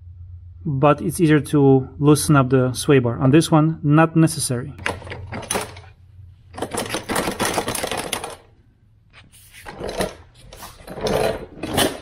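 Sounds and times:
metal frame clattering and rattling: 6.5s - 8.5s, 9.7s - 12.0s.

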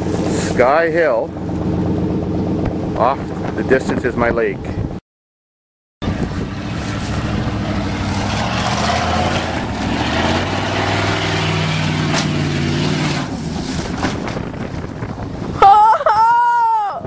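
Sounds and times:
truck engine pulling under load: 6.0s - 15.5s.

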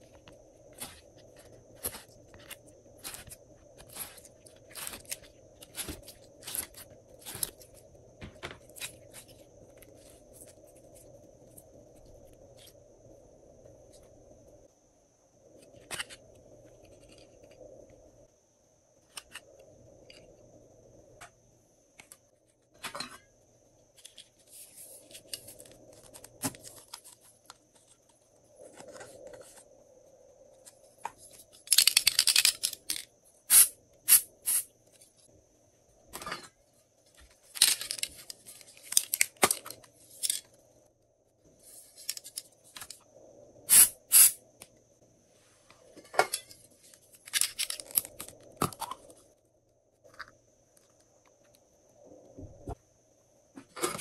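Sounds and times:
aerosol can spraying: 33.5s - 34.7s, 43.7s - 44.4s.

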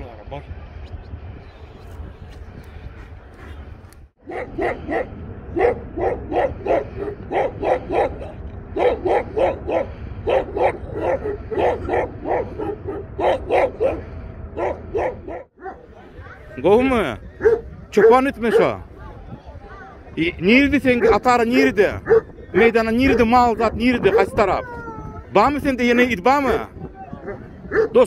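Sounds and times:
dog barking: 4.2s - 16.4s, 17.4s - 18.8s, 20.9s - 22.4s, 27.2s - 28.0s.

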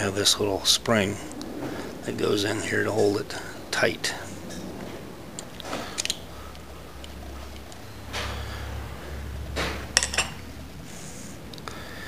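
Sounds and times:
low steady hum: 0.0s - 12.0s
sharp metal clicks: 5.4s - 7.8s
steel parts clinking and sliding: 5.4s - 7.9s, 9.7s - 10.4s.

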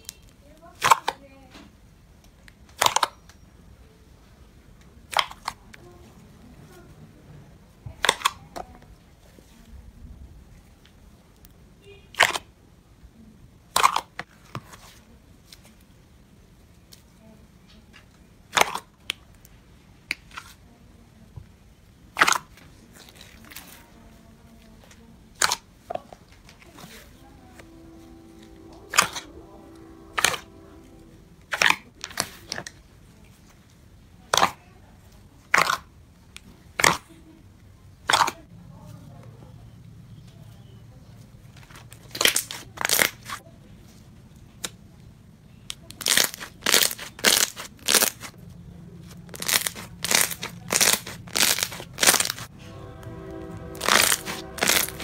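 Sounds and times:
slime crackling pops: 46.0s - 48.3s, 49.3s - 52.4s.

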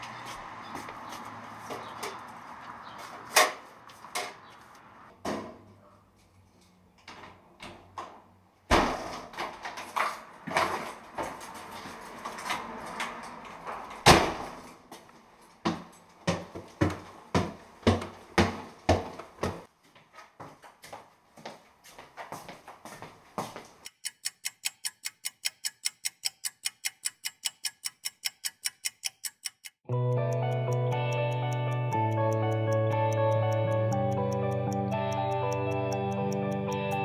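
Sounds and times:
footsteps: 0.0s - 4.7s, 14.9s - 23.8s.

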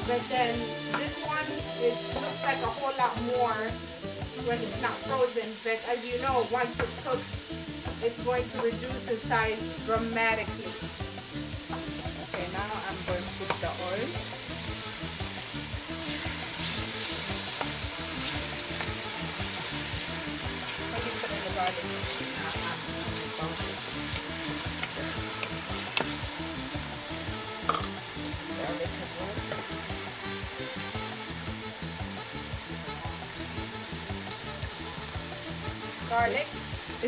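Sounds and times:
onions sizzling in oil: 0.0s - 37.0s
wooden spoon stirring: 15.9s - 26.3s.

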